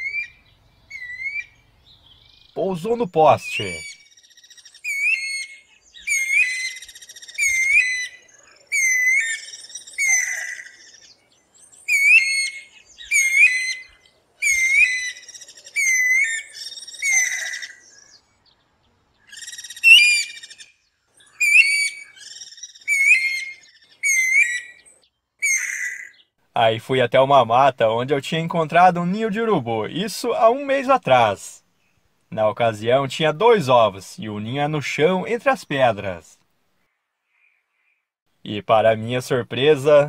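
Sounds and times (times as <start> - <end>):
bird whistled calls: 0.0 - 2.6, 3.5 - 18.2, 19.2 - 26.3.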